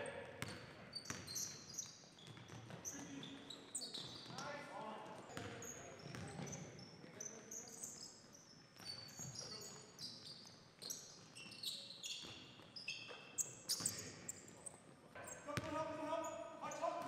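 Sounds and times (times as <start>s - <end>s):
basketball bouncing: 0.4s - 1.3s, 5.4s - 6.4s, 15.6s - 15.8s
sneakers squeaking on gym floor: 0.4s - 4.4s, 5.2s - 17.0s.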